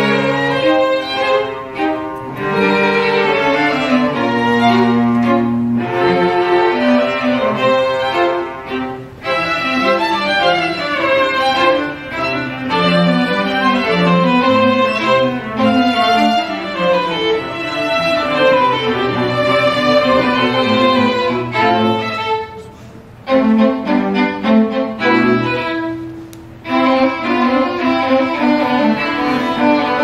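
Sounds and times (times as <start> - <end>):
string quartet playing: 0.0 - 30.0.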